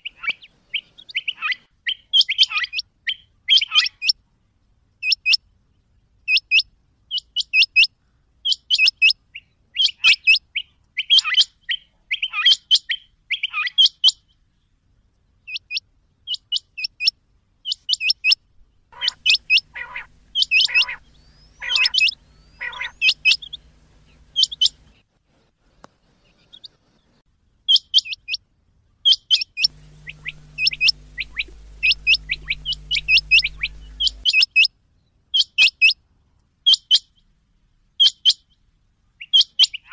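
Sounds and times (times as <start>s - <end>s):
quail calling: 0.0s - 4.1s, 17.7s - 25.0s, 29.3s - 34.7s
faint low hum: 18.4s - 27.2s, 29.6s - 34.3s.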